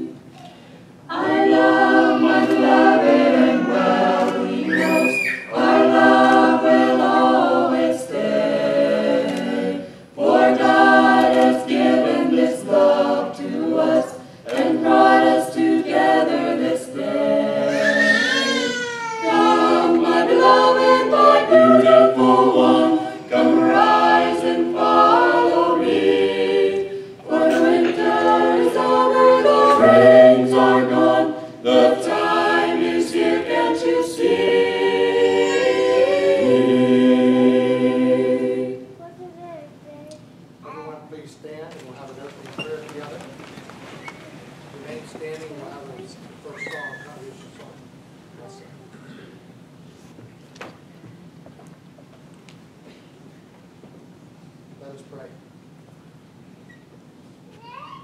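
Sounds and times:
choir singing a cappella: 0:00.0 - 0:00.2, 0:01.1 - 0:39.0.

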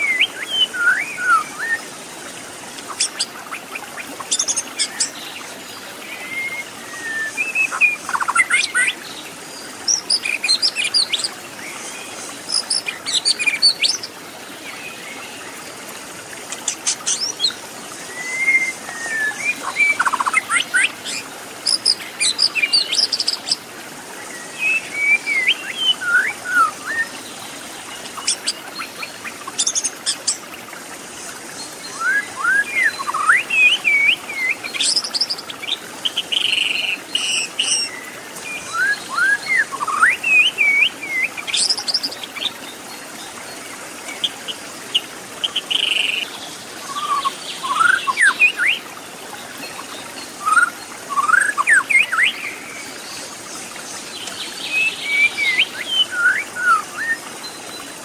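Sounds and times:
bird singing whistled notes: 0:00.0 - 0:01.8, 0:06.2 - 0:09.0, 0:18.1 - 0:20.9, 0:31.9 - 0:35.0, 0:36.4 - 0:41.7, 0:46.8 - 0:48.8, 0:50.4 - 0:52.5, 0:54.7 - 0:57.2
flowing water hiss: 0:00.0 - 0:58.0.

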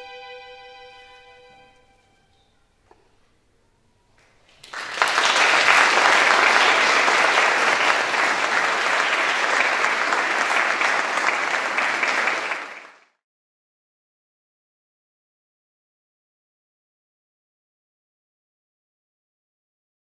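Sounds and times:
audience applauding: 0:04.5 - 0:13.2.

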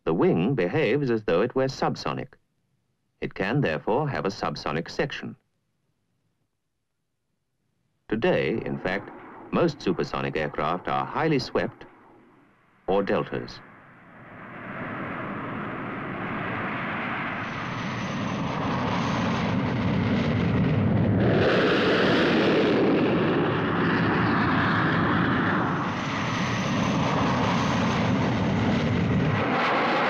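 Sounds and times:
jet engine rushing: 0:08.1 - 0:30.0.

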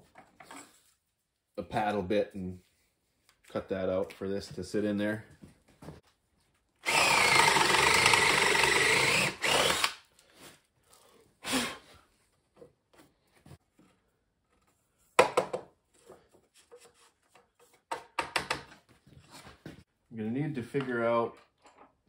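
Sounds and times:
cordless drill boring into wood: 0:06.8 - 0:10.0.

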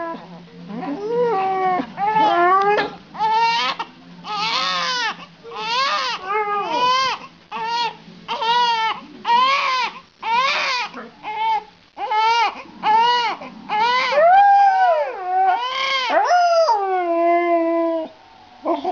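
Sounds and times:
dog howling: 0:00.0 - 0:07.1, 0:12.9 - 0:18.9
baby crying: 0:00.8 - 0:14.2, 0:15.1 - 0:16.2.

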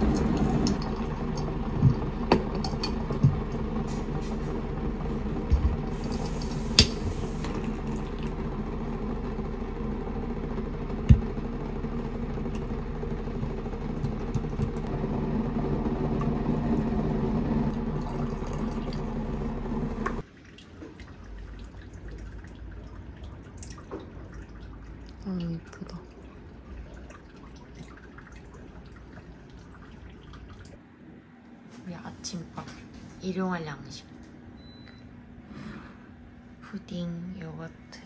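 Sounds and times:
water pouring: 0:00.0 - 0:02.2, 0:05.9 - 0:09.2, 0:17.7 - 0:30.8
steady hum: 0:00.0 - 0:20.2.

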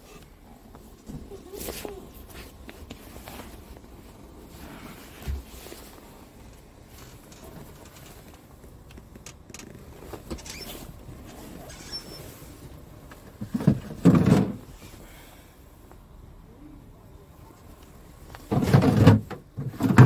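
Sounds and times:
plastic bin knocking and rattling: 0:13.4 - 0:14.6, 0:18.5 - 0:20.0.

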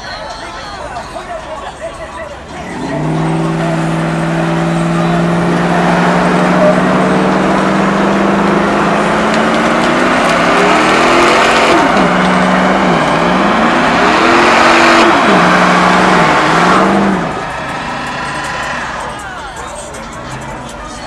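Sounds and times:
car engine revving: 0:02.4 - 0:21.0
loud rushing noise: 0:02.6 - 0:19.4.

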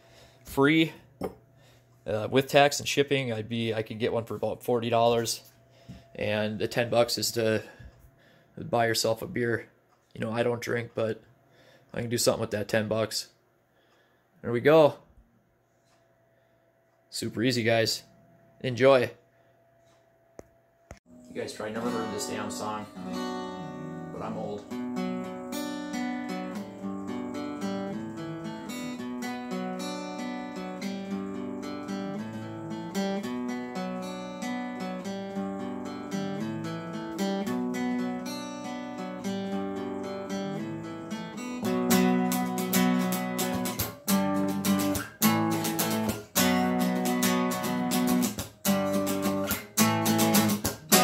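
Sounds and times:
acoustic guitar strumming: 0:02.1 - 0:07.9, 0:21.1 - 0:51.0
acoustic guitar picking: 0:21.2 - 0:51.0.

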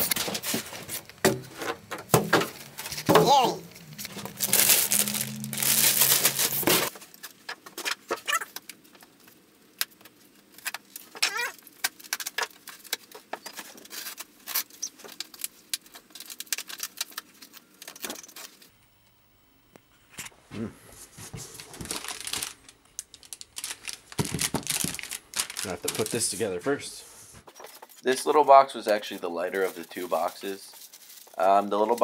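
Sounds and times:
plastic wrap crinkling: 0:02.5 - 0:09.4, 0:21.3 - 0:26.9, 0:27.6 - 0:32.0.

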